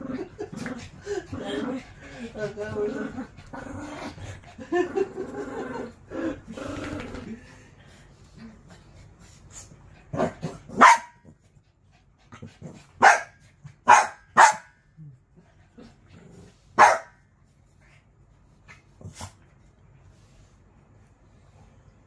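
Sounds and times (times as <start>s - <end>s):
small dogs barking: 10.8s - 11.2s, 13.0s - 14.7s, 16.8s - 17.2s.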